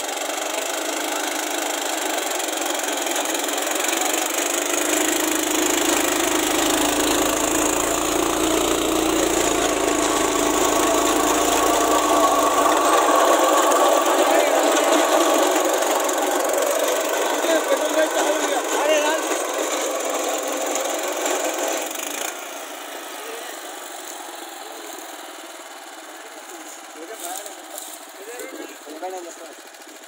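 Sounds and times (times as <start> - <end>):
tractor engine running: 0.0 - 30.0
blades grinding through soil: 4.8 - 21.9
low hum: 5.4 - 17.5.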